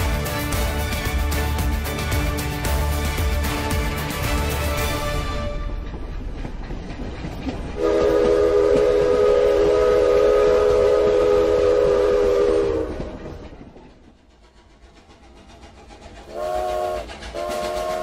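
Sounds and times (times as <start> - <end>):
train rumbling and clattering: 0.0 - 18.0
multi-note train whistle: 7.8 - 13.4, 16.3 - 18.0.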